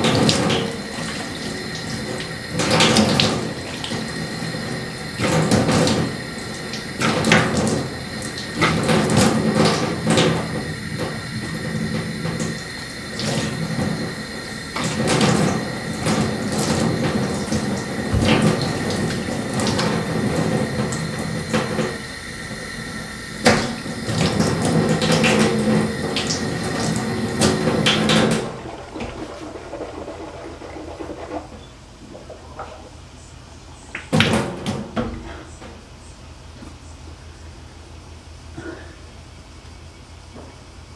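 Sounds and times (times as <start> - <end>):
tap water running into sink: 0.0 - 33.1
water splashing on face: 24.1 - 33.2.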